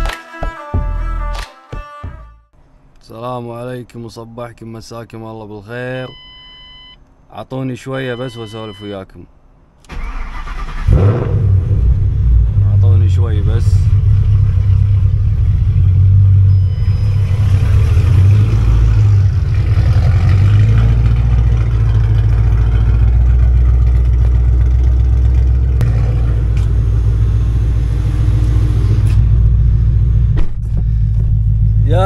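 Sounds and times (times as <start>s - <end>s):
car engine rumbling: 8.2s - 32.0s.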